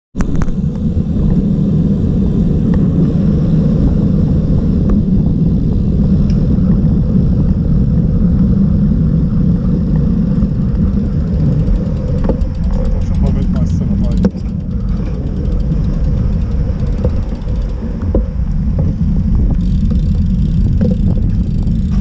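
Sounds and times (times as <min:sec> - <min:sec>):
bicycle tyre and road noise: 0:00.2 - 0:22.0
wind rumble on microphone: 0:00.2 - 0:22.0
faint ticks: 0:10.7 - 0:18.9.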